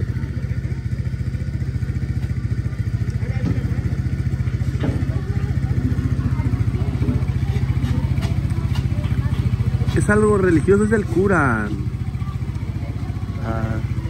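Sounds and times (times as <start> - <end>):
faint voices: 0.0 - 14.0
motor engine running: 0.0 - 14.0.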